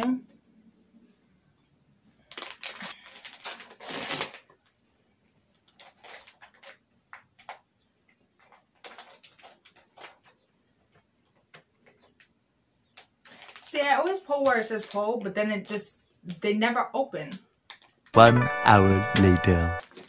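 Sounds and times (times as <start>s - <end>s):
plastic pouch crinkling: 2.2s - 4.8s, 5.5s - 7.6s, 8.4s - 10.4s, 13.0s - 15.1s, 19.8s - 20.0s.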